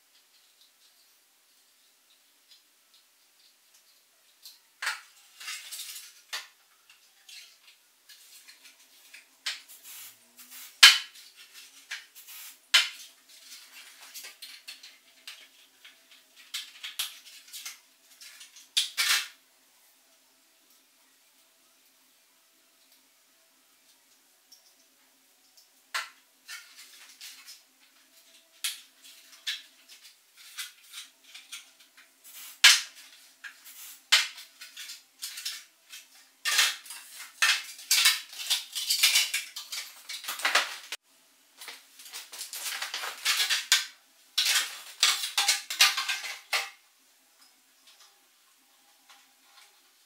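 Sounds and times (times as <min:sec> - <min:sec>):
plastic parts clattering and scraping: 0:04.8 - 0:06.6, 0:26.0 - 0:41.0, 0:41.6 - 0:46.8
plastic parts clicking and knocking: 0:41.6 - 0:46.8.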